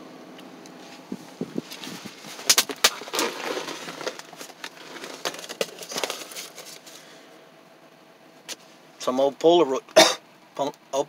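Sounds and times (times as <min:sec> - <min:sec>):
hands rummaging through debris: 0:00.9 - 0:07.2.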